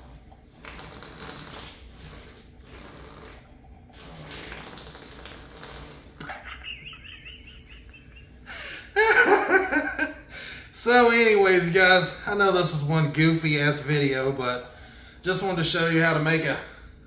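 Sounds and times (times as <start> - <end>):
straw blown into plastic cup: 0.6 - 3.4, 4.0 - 6.3.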